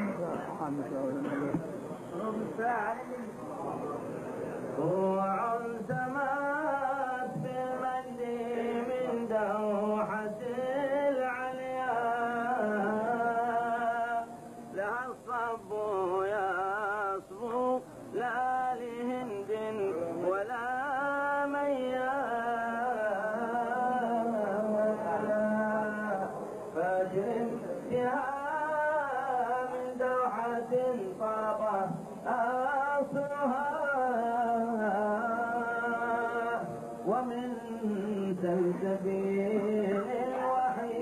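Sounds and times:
man singing a devotional chant: 0.0 - 3.7, 4.8 - 41.0.

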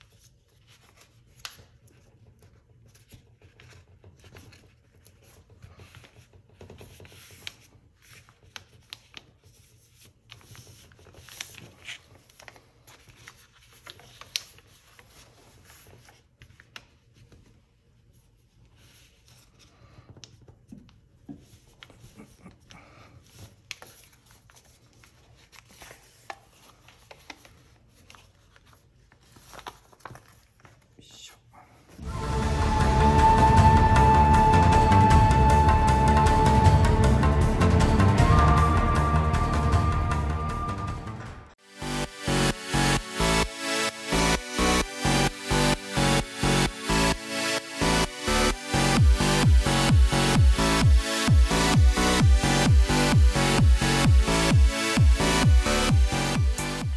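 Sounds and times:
paper crackling as folded: 0.0 - 20.5, 23.2 - 31.0
paper rustling: 0.0 - 31.0.

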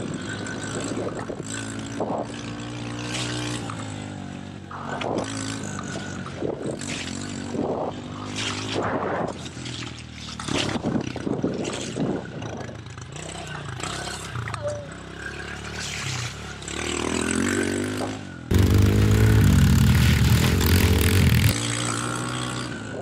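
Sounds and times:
bursts of rushing noise: 18.5 - 21.5
pit bike engine running: 18.5 - 21.7.

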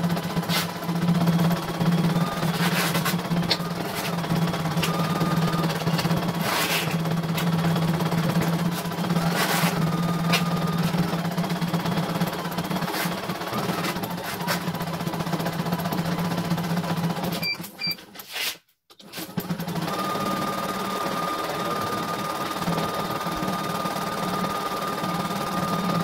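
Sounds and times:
embroidery machine stitching: 0.0 - 17.8, 19.0 - 26.0
short machine beeps: 4.7 - 6.2, 17.4 - 18.0.

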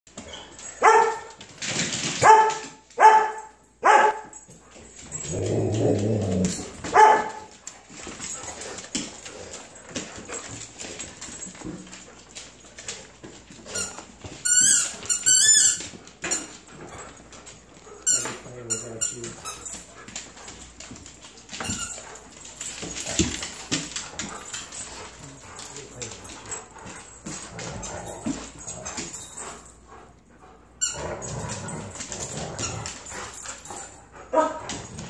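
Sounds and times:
dog barking: 0.8 - 1.2, 2.2 - 4.3, 6.9 - 7.4
dog growling: 5.2 - 6.7
dog whining: 5.2 - 7.1.

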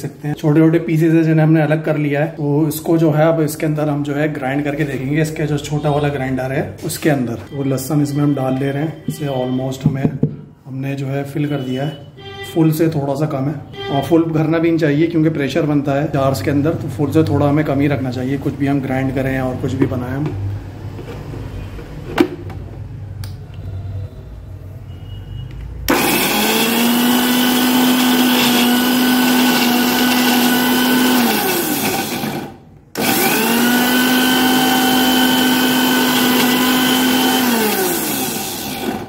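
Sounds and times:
click: 23.2 - 23.7
mixer grinder motor running: 25.9 - 39.0.

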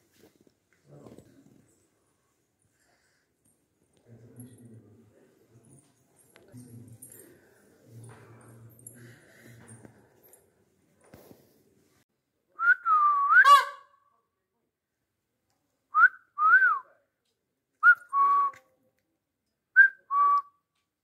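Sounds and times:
person whistling: 12.6 - 13.5, 16.0 - 16.9, 19.8 - 20.5.

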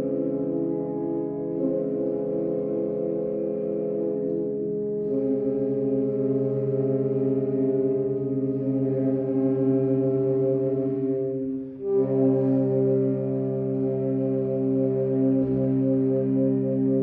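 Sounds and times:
saxophone ensemble playing chords: 0.0 - 17.0.

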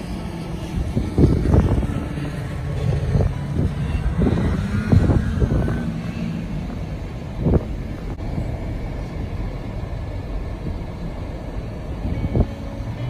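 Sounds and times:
car rumbling over ice: 0.0 - 9.1.

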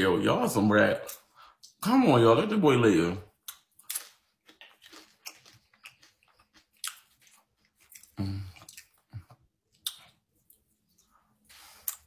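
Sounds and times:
person chewing food: 3.4 - 12.0
person humming: 8.2 - 8.6.

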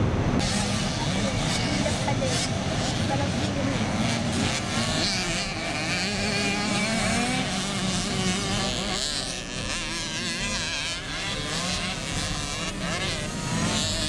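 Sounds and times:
motocross bike engines revving: 0.0 - 14.0.

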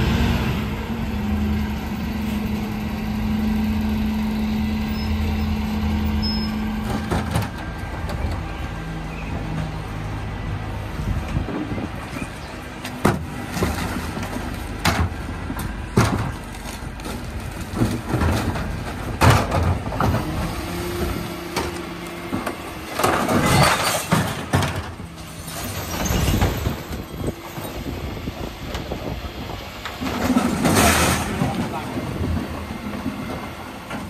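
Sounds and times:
recycling rushing out of bins: 11.3 - 34.0
plastic bins banging on lift: 17.7 - 20.4.

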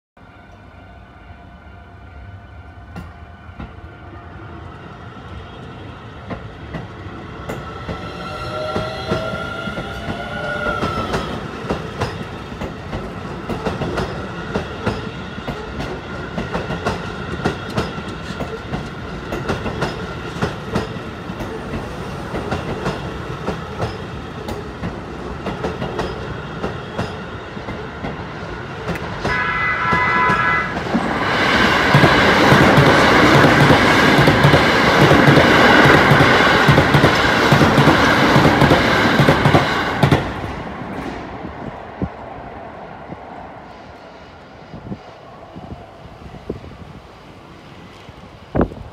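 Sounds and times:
train horn: 0.2 - 4.6, 7.9 - 11.5, 29.2 - 31.1
train wheels clickety-clack: 5.6 - 42.2
train motor whine: 7.5 - 11.5.

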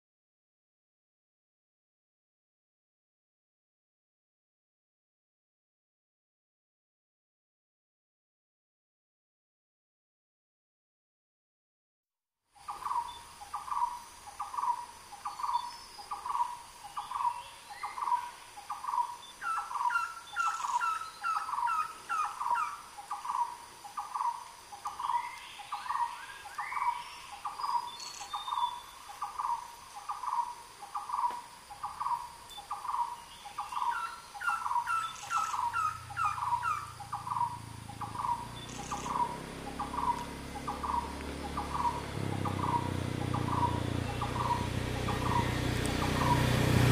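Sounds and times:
bird calling mellow notes: 12.7 - 46.4.

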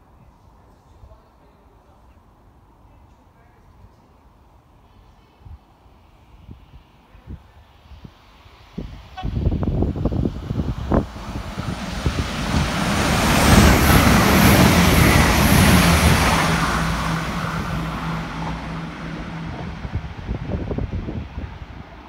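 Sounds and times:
train wheels rushing on rail: 7.5 - 22.0.

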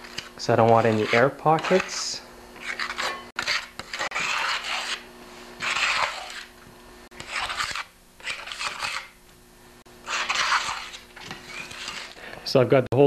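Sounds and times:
scraper rasping across plywood: 0.1 - 5.0, 5.6 - 6.5, 7.2 - 9.1, 10.1 - 12.2.

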